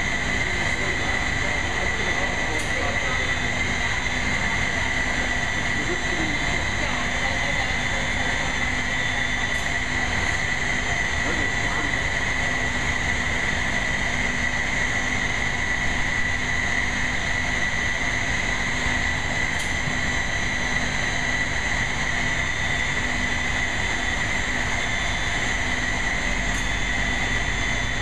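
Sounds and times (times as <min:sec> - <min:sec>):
high-pitched machinery whine: 0:00.0 - 0:28.0
low hum: 0:00.0 - 0:28.0.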